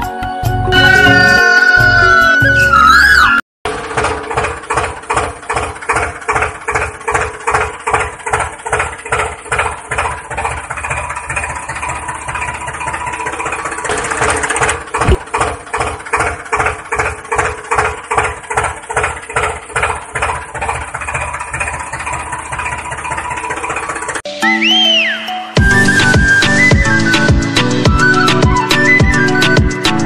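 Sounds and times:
tractor engine idling: 3.7 - 24.2.

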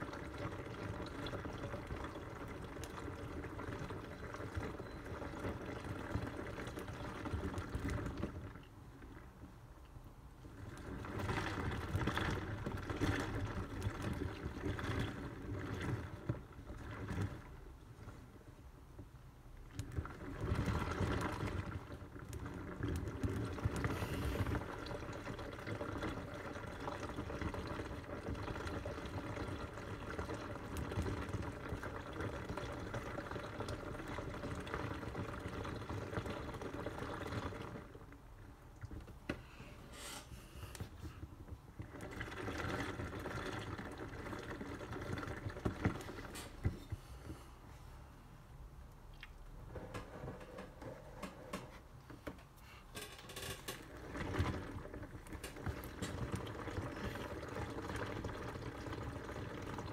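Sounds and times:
water and clothes sloshing: 53.0 - 59.9.

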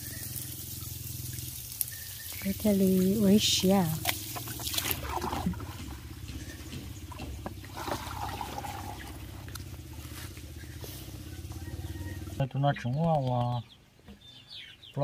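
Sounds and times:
hose water splashing: 0.0 - 12.4
steady low hum: 0.0 - 12.4
handling clicks and splashes: 3.7 - 6.1.

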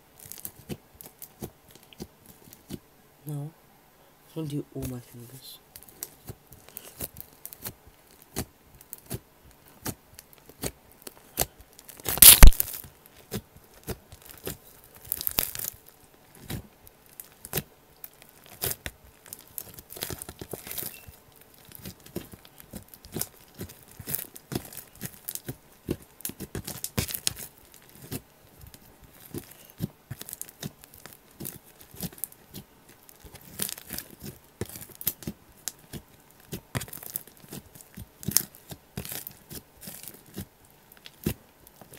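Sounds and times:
slime sticky clicks and pops: 11.4 - 12.8.

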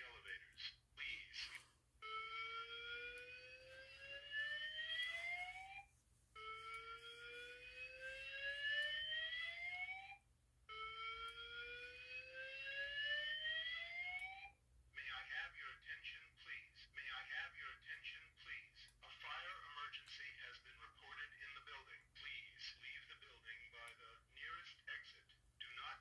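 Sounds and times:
fire alarm whoop tone: 2.0 - 14.6.

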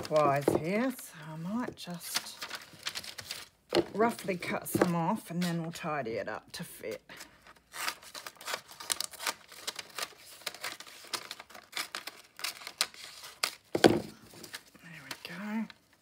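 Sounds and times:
scissors snipping paper: 7.6 - 13.6.

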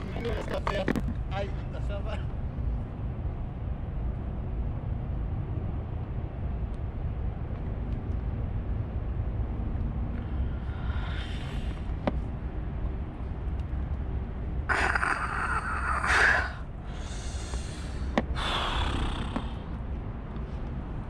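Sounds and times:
low steady rumble: 0.0 - 21.0
person breathing hard: 10.1 - 12.2, 14.7 - 19.8.

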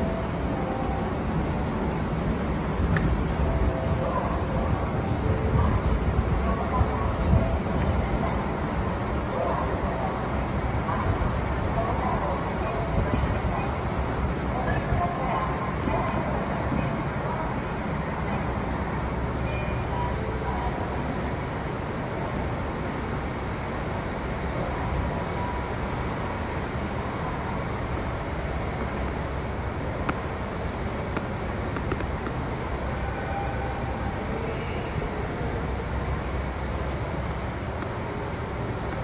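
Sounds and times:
wind buffeting microphone: 0.0 - 17.9
blizzard wind blowing: 0.0 - 39.0.

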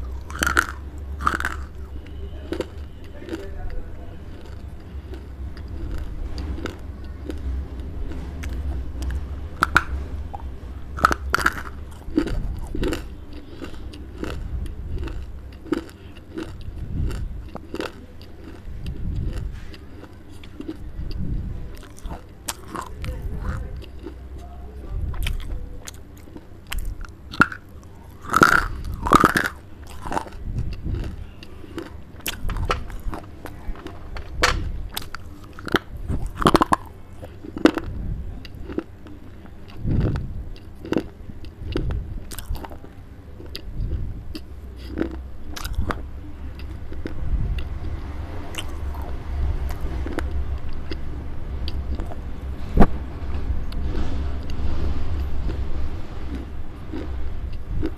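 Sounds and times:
chewing clay crunches: 0.0 - 24.4, 25.0 - 52.9, 56.2 - 57.9.

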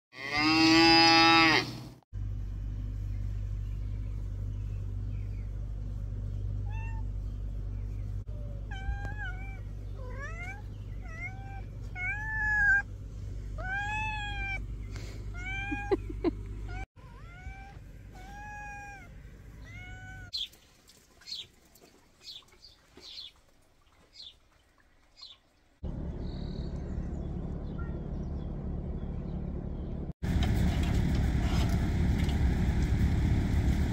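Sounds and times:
steady low rumble: 2.2 - 16.8, 25.8 - 33.9
cat meowing: 8.3 - 12.8, 13.6 - 14.6, 15.4 - 16.0, 16.7 - 20.4.

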